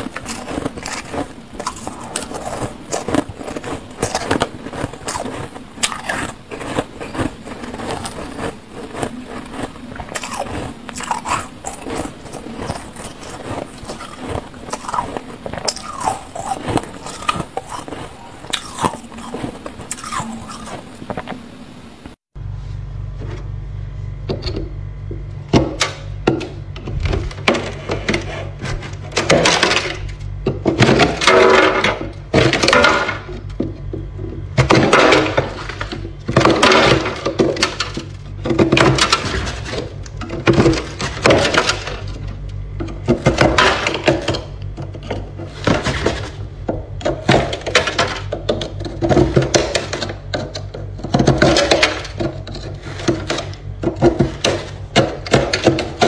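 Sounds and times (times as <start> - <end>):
ice scraping and cracking: 0.0 - 21.4
low hum: 0.0 - 30.5.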